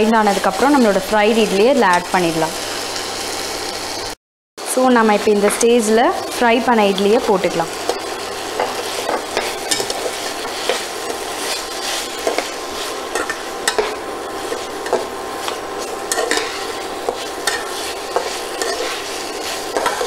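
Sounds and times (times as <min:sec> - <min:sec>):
food sizzling: 0:00.0 - 0:20.0
metal spatula scraping pan: 0:07.9 - 0:20.0.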